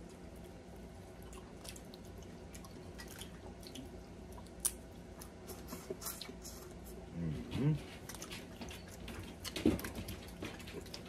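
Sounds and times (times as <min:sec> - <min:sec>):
wet clicks of eating seafood: 0:00.0 - 0:06.5.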